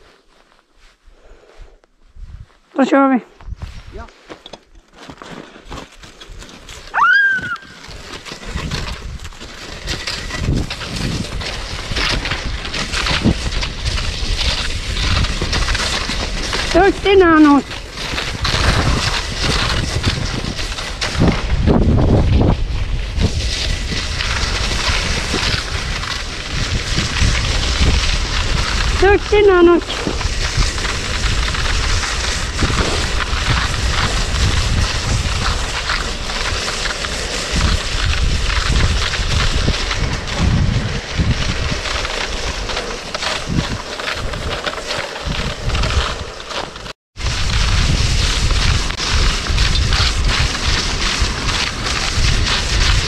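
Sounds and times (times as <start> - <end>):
wind buffeting microphone: 2.0 - 2.6, 7.4 - 46.6, 47.2 - 53.0
sled rushing over snow: 2.2 - 53.0.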